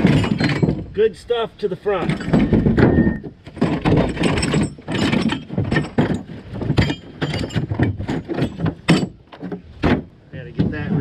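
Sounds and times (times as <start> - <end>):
chains and hooks clanking: 0.0 - 1.1, 2.0 - 9.6.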